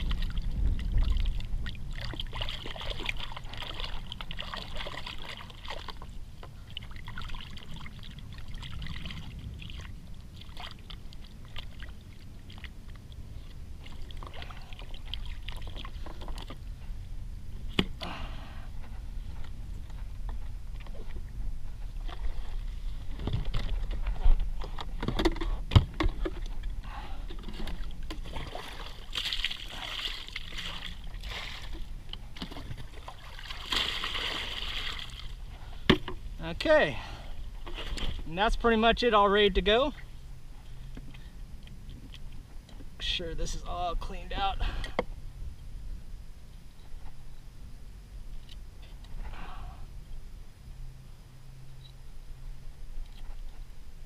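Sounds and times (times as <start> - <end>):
low hum: 0.0 - 54.0
water splashing from a jug: 1.0 - 6.1, 27.4 - 31.8, 32.4 - 35.3.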